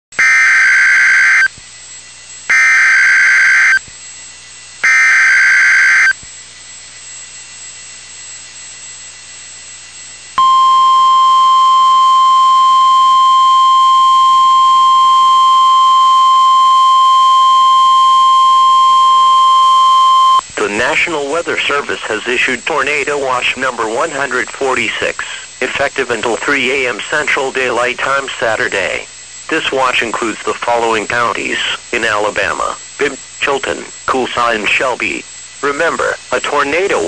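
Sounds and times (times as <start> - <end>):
buzzy digital data bursts: 0.2 - 1.5, 2.5 - 3.8, 4.8 - 6.2
steady alarm tone: 0.2 - 6.2, 10.4 - 20.4
low radio hiss: 10.4 - 37.0.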